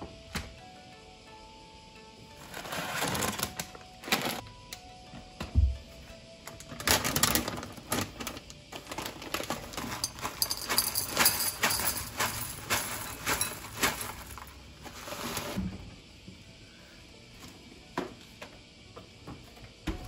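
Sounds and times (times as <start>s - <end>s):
plastic bag crinkling: 2.6s - 4.4s, 6.8s - 15.6s
granola rattling into ceramic bowl: 9.5s - 14.5s.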